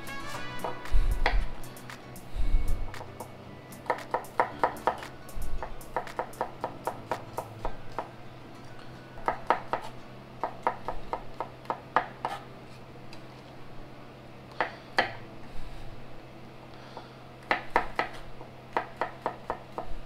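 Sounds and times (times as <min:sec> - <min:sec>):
knife tapping on wooden board: 0:03.8 - 0:08.1.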